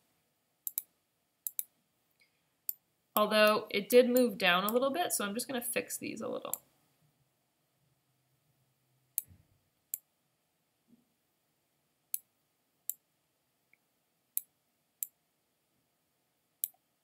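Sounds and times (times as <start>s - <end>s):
computer mouse clicks: 0.7s - 1.7s, 16.6s - 16.8s.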